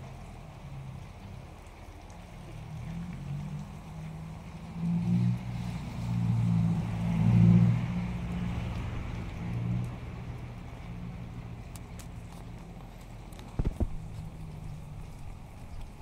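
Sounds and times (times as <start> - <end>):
rain hissing: 2.1 - 12.2
scooter engine passing by: 2.7 - 11.6.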